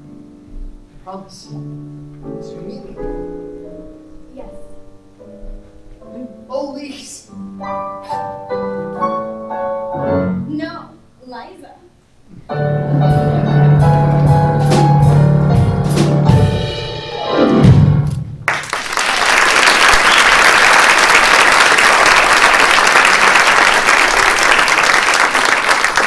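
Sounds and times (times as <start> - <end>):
live band playing: 12.4 - 18.4
audience applause: 18.5 - 26.0.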